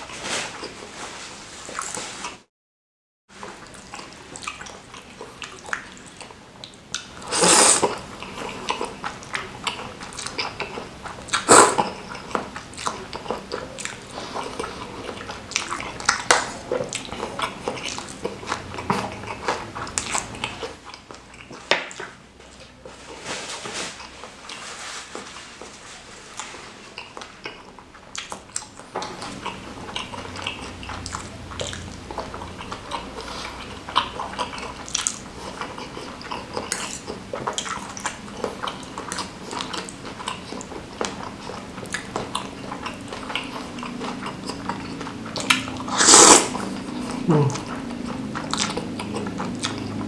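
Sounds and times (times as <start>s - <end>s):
wet chewing and lip-smacking: 3.4s - 22.8s, 26.4s - 50.0s
slurping: 6.9s - 20.8s, 28.2s - 50.0s.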